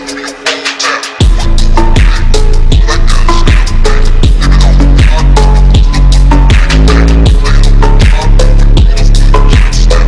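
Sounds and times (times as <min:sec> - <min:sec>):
kick drum: 0:01.2 - 0:01.4, 0:02.0 - 0:04.4, 0:05.0 - 0:08.2, 0:08.8 - 0:09.8
sustained heavy bass: 0:01.2 - 0:10.0.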